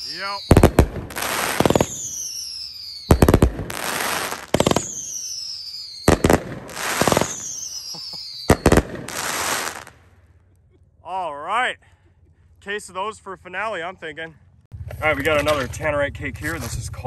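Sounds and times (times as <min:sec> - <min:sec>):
firework cake whistles: 0:00.0 - 0:09.9
firework bangs: 0:00.0 - 0:10.2
firework crackling: 0:00.0 - 0:10.2.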